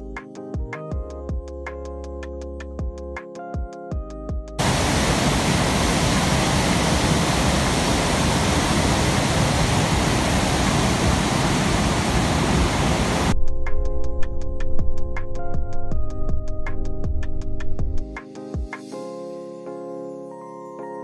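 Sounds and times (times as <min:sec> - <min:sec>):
waterfall rushing: 0:04.6 - 0:13.3.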